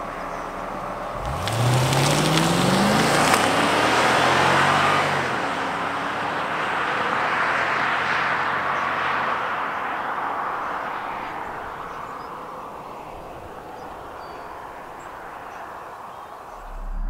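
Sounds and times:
car driving away: 0.0s - 15.3s, 16.4s - 17.0s
low rumble: 16.6s - 17.0s.

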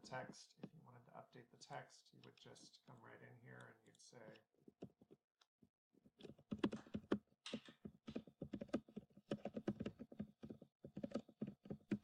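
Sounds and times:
computer keyboard typing: 6.2s - 12.0s.

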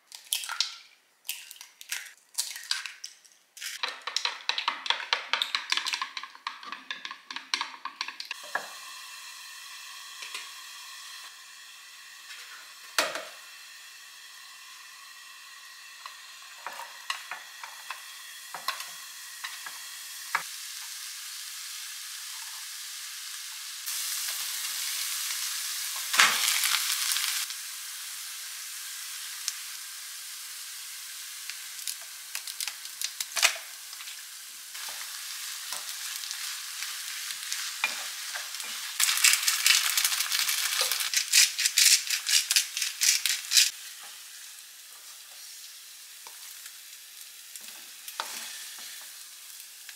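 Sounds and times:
wooden spatula tapping and scraping: 3.8s - 8.7s
rice and chicken sizzling in pan: 7.4s - 49.9s.

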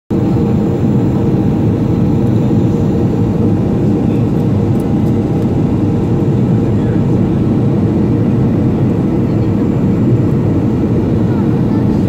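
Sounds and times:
jet airliner cabin rumble: 0.1s - 12.0s.

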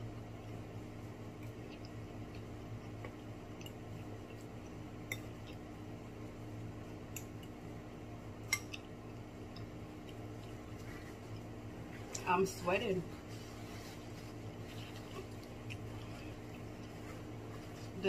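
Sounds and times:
steady low hum: 0.0s - 18.0s
wet chewing: 1.3s - 5.7s, 8.5s - 12.3s, 13.1s - 18.0s.

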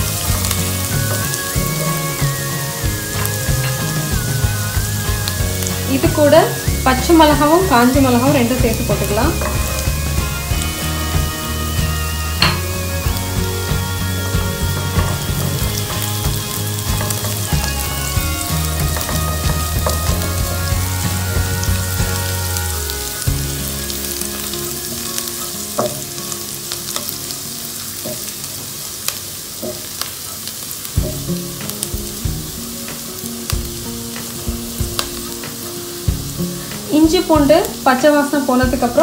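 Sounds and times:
oil sizzling in a pan: 0.0s - 39.0s
spatula stirring and scraping: 9.0s - 11.2s.

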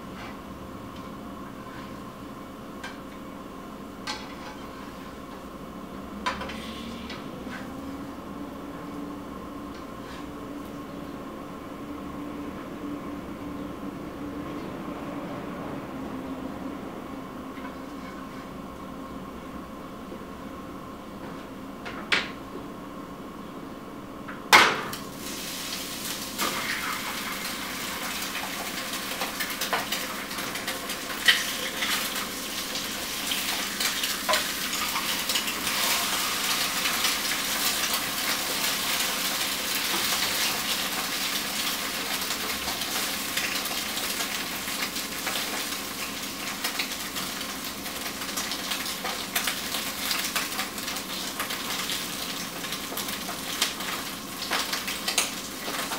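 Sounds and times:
food sizzling in frying pan: 24.9s - 55.9s.

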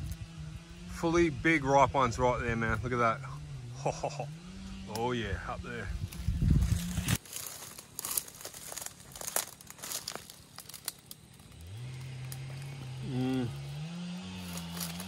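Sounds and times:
leaves and twigs rustling: 5.9s - 15.0s
man humming: 13.0s - 13.8s.

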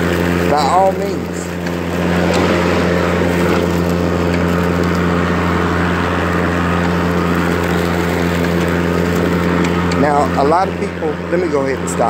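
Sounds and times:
lawn mower motor humming: 0.0s - 12.0s.

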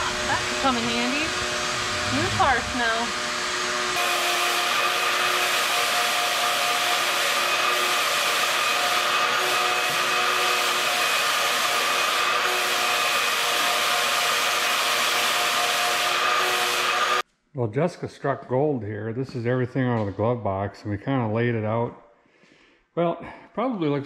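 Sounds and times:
shop vacuum running: 0.0s - 17.2s.

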